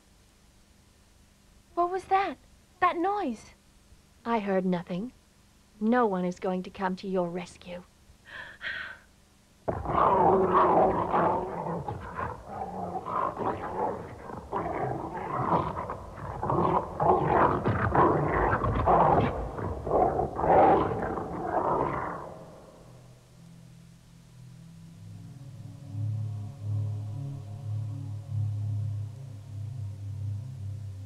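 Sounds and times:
loud rough animal cries: 9.7s - 22.8s.

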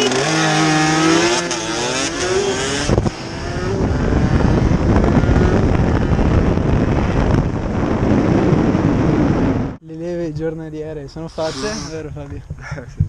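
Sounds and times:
motorcycle engine revving: 0.0s - 9.8s
rush of noise: 11.2s - 12.1s.

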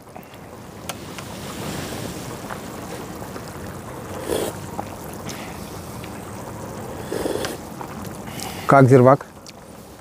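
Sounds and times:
pot boiling and bubbling: 0.0s - 10.0s
slurp from spoon: 4.2s - 4.6s.

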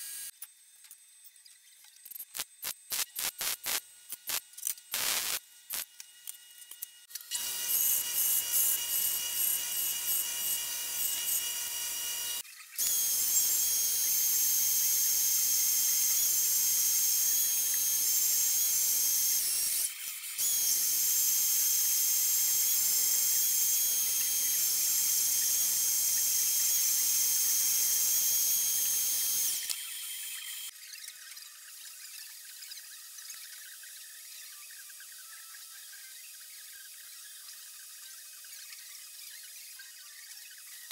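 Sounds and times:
band saw cutting steel: 2.4s - 5.9s, 7.2s - 30.7s
belt sander grinding steel: 6.8s - 30.7s.

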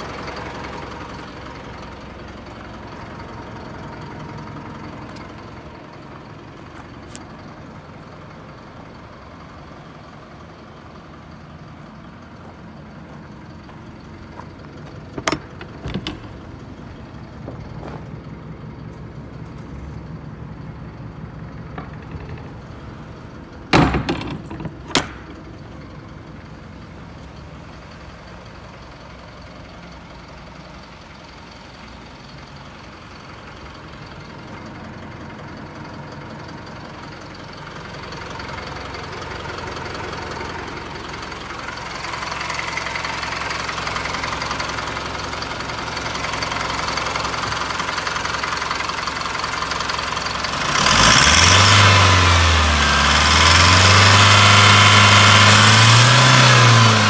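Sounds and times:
diesel engine idling: 0.0s - 57.0s
cargo door banging shut: 23.7s - 25.3s.

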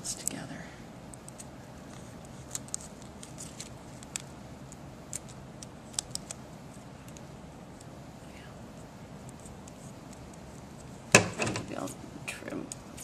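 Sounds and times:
room tone: 0.0s - 13.0s
paper and tape crackling: 1.1s - 7.9s.

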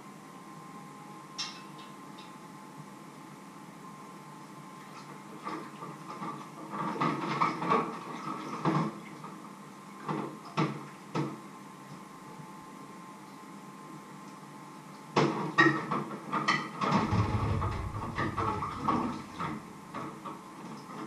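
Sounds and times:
faint steady hum: 0.0s - 5.4s, 16.9s - 20.0s.

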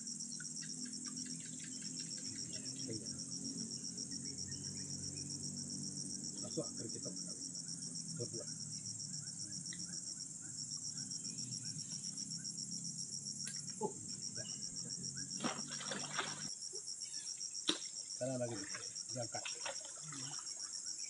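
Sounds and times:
insects trilling: 0.0s - 21.0s
water splashing and sloshing: 15.3s - 16.5s, 17.7s - 20.6s.

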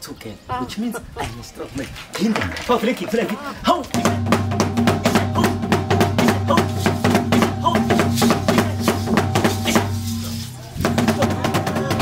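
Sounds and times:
rapid drumbeats: 3.7s - 12.0s.

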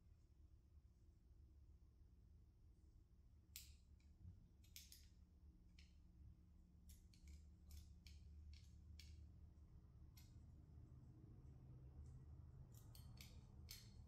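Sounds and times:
low room hum: 0.0s - 14.0s
light metal clicks: 12.7s - 14.0s.

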